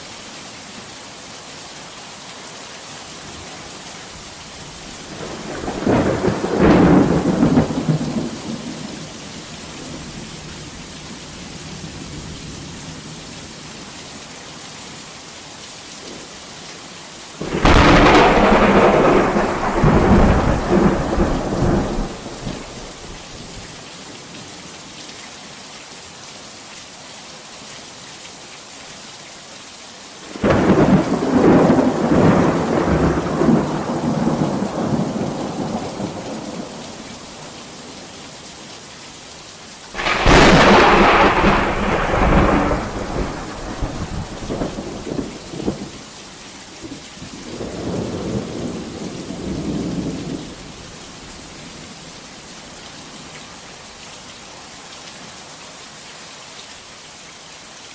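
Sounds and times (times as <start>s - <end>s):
heavy rain: 0.0s - 57.9s
thunder rumbling: 5.1s - 8.9s, 17.4s - 23.2s, 30.4s - 36.8s, 40.0s - 45.9s.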